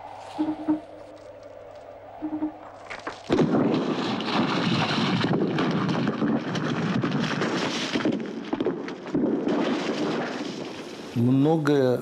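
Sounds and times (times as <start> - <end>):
rocks cracking and knocking: 2.7 - 11.2
rockfall tumbling rocks: 2.8 - 11.2.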